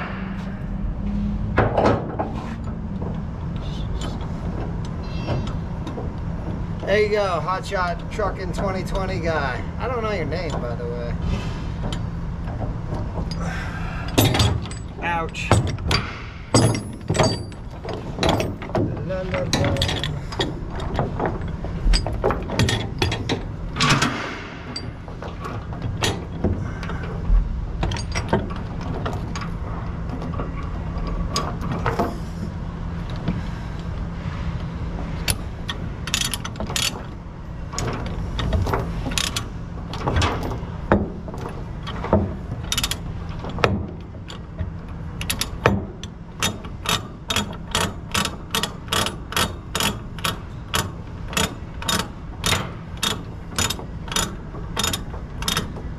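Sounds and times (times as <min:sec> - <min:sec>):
steady low hum: 0:00.0 - 0:55.9
ratchet clicking: 0:46.4 - 0:55.8.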